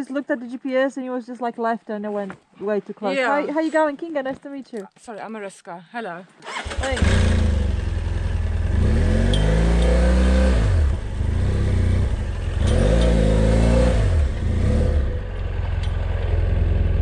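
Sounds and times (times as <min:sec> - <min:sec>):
motorcycle engine revving: 0:06.4 - 0:17.0.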